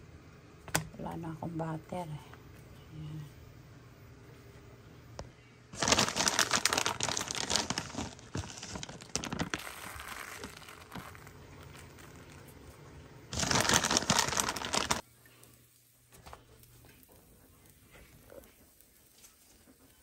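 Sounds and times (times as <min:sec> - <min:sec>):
plastic bag crinkling: 0:05.7 - 0:15.0.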